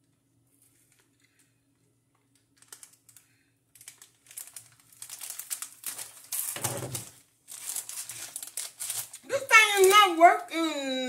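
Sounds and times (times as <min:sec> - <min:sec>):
plastic bag crinkling: 0:02.1 - 0:10.5.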